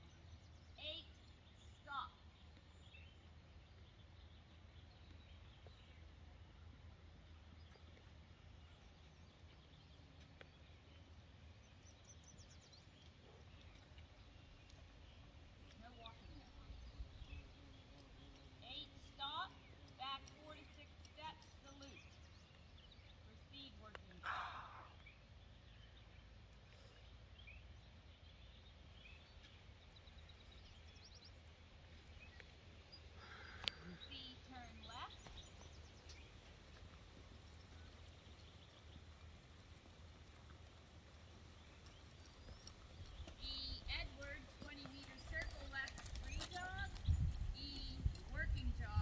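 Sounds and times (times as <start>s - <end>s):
low steady rumble: 34.8s - 49.0s.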